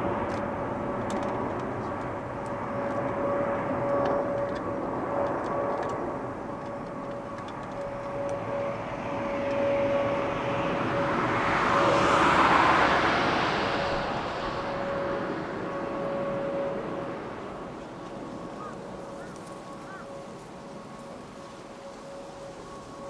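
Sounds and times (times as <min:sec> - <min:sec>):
jet engines rumbling and droning: 0:00.0 - 0:23.0.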